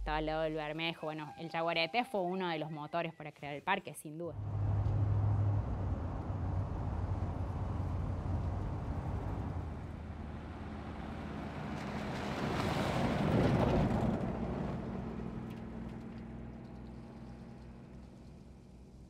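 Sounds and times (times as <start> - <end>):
truck engine hum: 4.3 - 19.0
tyre and road noise: 4.3 - 19.0.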